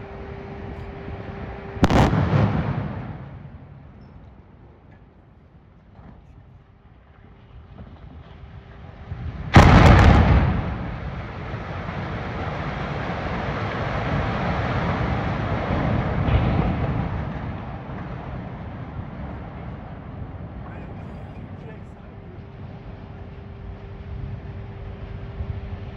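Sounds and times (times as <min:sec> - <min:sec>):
rumble of collapsing structures: 0:00.0 - 0:25.9
explosion blast: 0:01.8 - 0:04.0, 0:09.1 - 0:20.7.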